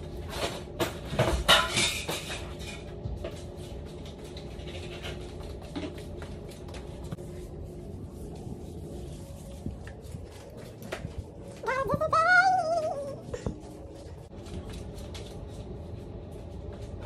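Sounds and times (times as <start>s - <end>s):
belongings rustling and clattering: 0.0s - 17.0s
faint hum: 2.1s - 17.0s.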